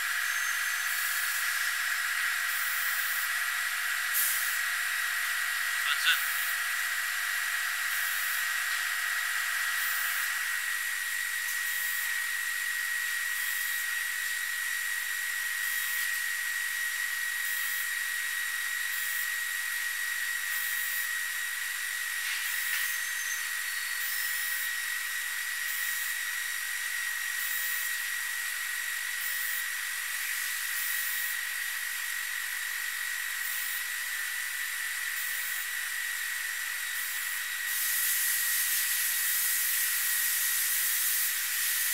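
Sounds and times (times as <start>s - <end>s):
induction heater hiss: 0.0s - 17.8s, 26.8s - 41.9s
high-pitched whine: 0.0s - 41.9s.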